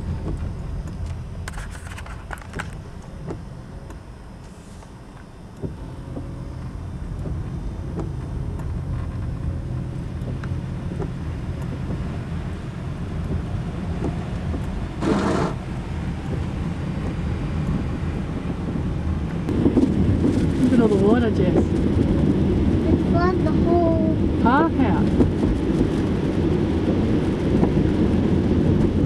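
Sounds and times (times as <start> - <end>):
car engine and tyres rumbling: 0.0 - 29.0.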